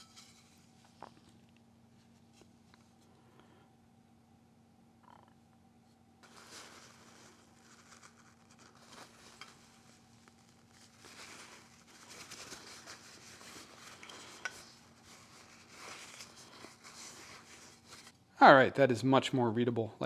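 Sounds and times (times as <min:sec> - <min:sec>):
paper towel rubbing: 0:06.2 - 0:18.2.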